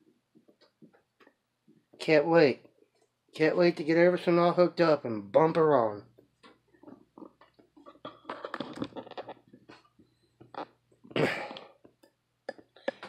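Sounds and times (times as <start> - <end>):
phone handling clicks and rustles: 6.2 - 13.0.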